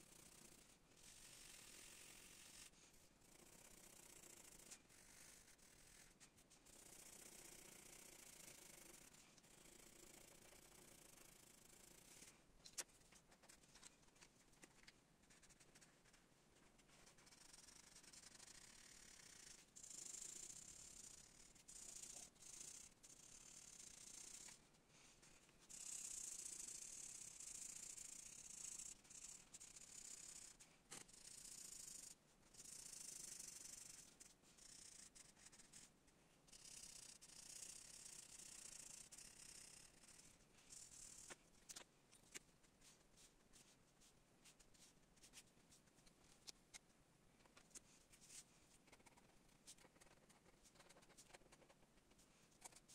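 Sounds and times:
marker scratching on paper: 0:12.1 - 0:19.7, 0:32.7 - 0:35.9, 0:38.0 - 0:46.6, 0:47.4 - 0:52.9.

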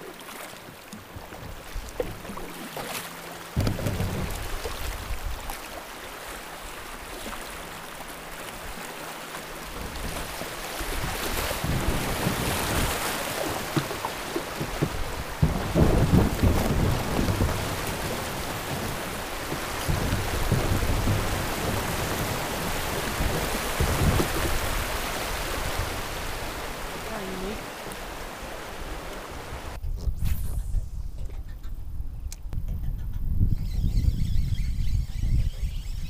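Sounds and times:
river water rushing: 0:00.0 - 0:29.8
low water rumbles: 0:00.0 - 0:36.0.

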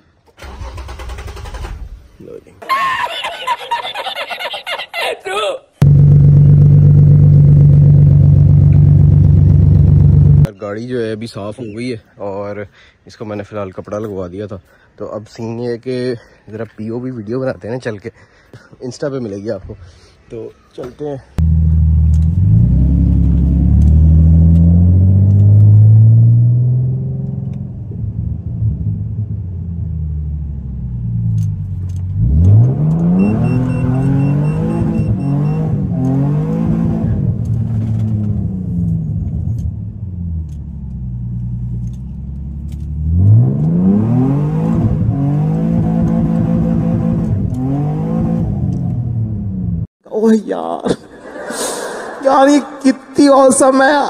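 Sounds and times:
car engine revving through gears: 0:05.8 - 0:10.5, 0:21.4 - 0:27.9, 0:28.6 - 0:49.9.

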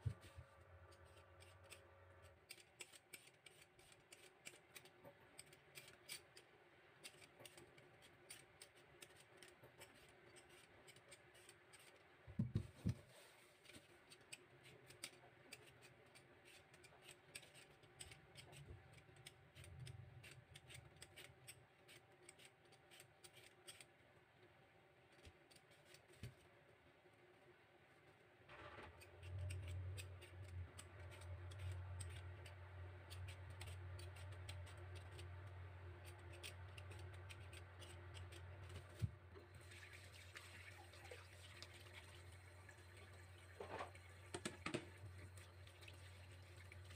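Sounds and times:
vegetable peeler scraping skin: 0:00.9 - 0:12.0, 0:14.0 - 0:23.9, 0:29.1 - 0:35.3, 0:36.0 - 0:39.1.

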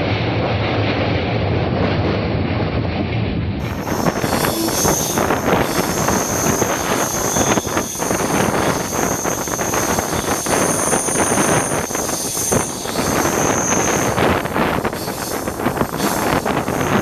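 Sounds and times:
train wheel rumble and rail clatter: 0:00.0 - 0:17.0
high steady whine: 0:03.6 - 0:17.0
wind buffeting microphone: 0:03.6 - 0:17.0.

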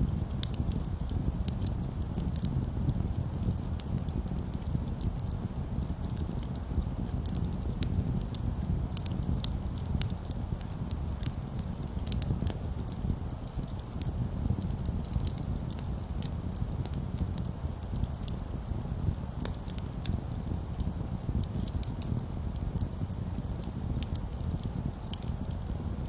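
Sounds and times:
campfire crackling and popping: 0:00.0 - 0:26.0.

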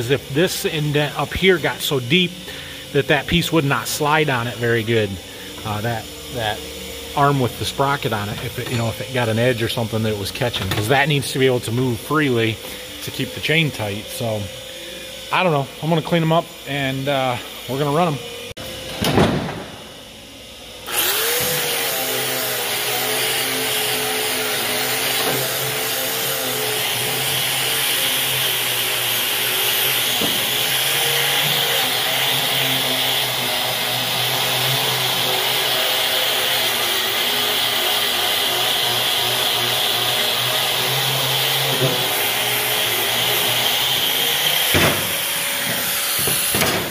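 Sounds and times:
angle grinder wire brush scrubbing metal: 0:20.9 - 0:46.9.

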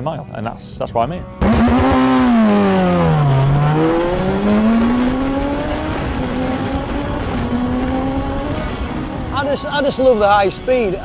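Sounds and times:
motorcycle engine revving: 0:01.4 - 0:09.4.

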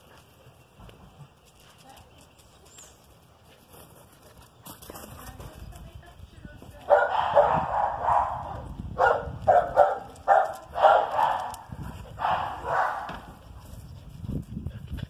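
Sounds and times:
dog barking: 0:06.9 - 0:13.3.

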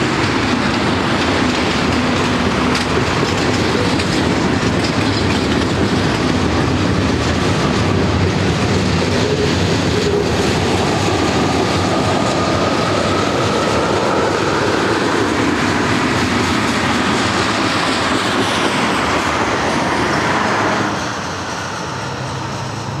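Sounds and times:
wheel clickety-clack over joints: 0:00.0 - 0:20.3
train wheels rumbling on rails: 0:00.0 - 0:23.0.

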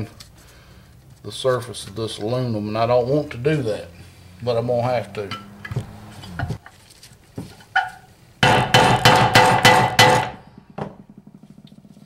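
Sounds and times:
ringing hammer blows on metal: 0:08.4 - 0:10.4.

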